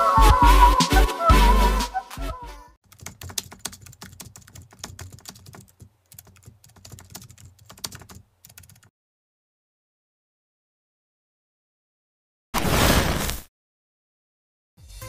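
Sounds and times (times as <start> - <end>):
music: 0.0 - 2.8, 14.8 - 15.0
keyboard typing clicks: 2.9 - 8.9.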